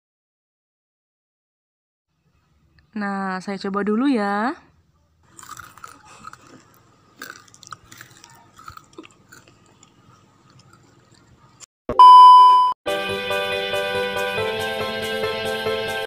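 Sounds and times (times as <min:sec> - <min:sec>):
crackers crunching: 0:05.2 - 0:11.7
loud steady beep: 0:11.9 - 0:12.8
music: 0:12.9 - 0:16.0.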